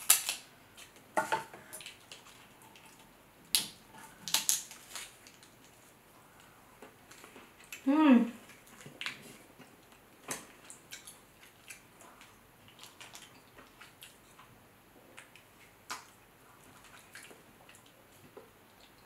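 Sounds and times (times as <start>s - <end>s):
shrimp shell crackling and snapping: 0.0s - 0.9s, 2.9s - 5.7s.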